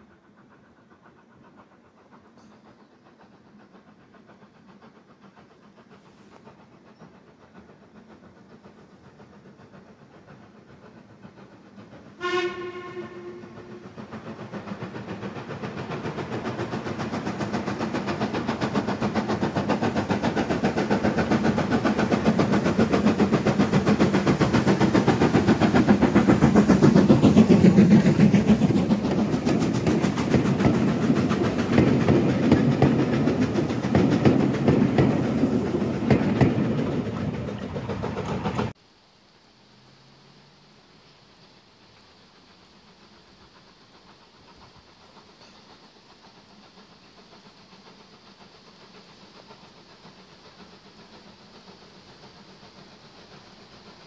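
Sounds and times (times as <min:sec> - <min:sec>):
steam train passing: 0:00.0 - 0:54.0
steam locomotive whistle: 0:12.2 - 0:14.0.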